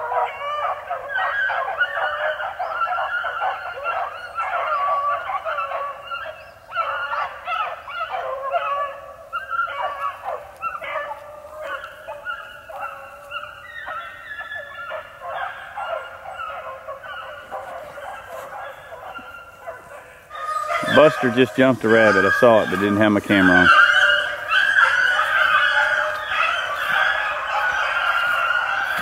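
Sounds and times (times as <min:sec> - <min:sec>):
hounds baying: 0:00.0 - 0:29.0.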